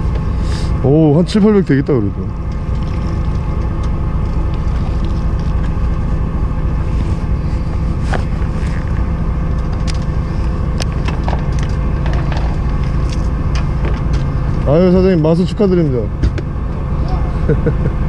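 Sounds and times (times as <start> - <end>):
boat engine humming: 0.0 - 18.0.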